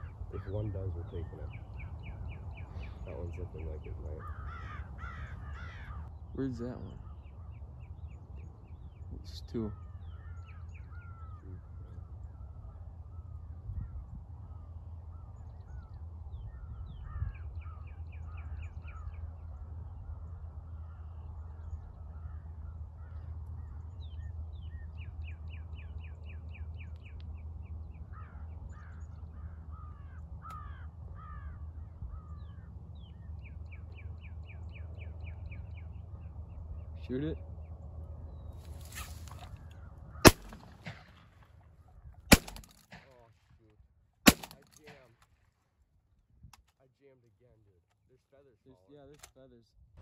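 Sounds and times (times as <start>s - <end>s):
low rumble: 0.0s - 43.0s
crows cawing: 3.6s - 6.2s, 9.6s - 24.0s, 27.9s - 33.2s, 38.6s - 41.3s.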